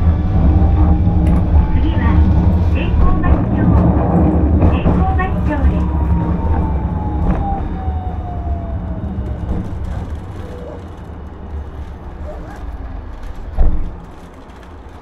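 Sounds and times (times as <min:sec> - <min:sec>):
streetcar whine falling in pitch: 0:00.0 - 0:10.8
wheels rumbling on rails: 0:00.0 - 0:15.0.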